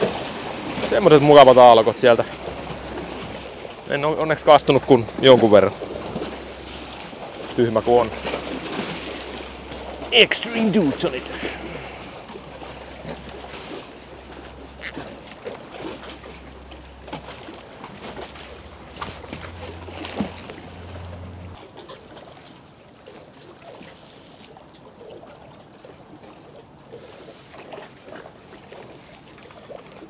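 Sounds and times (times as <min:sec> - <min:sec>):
water lapping and splashing: 0:00.0 - 0:30.0.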